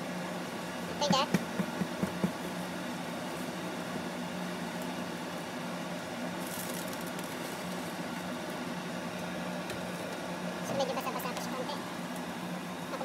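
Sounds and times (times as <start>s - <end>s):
cooktop electric hum: 0.0s - 13.0s.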